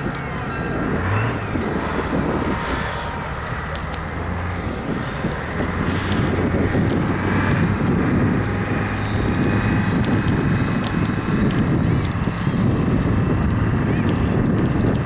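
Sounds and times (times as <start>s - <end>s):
small clicks: 0.0s - 15.0s
tyres churning dirt and gravel: 0.0s - 15.0s.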